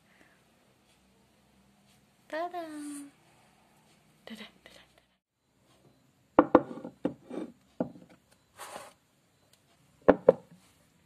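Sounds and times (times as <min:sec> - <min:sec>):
objects knocking on a table: 0:06.4 - 0:08.2, 0:10.1 - 0:10.5.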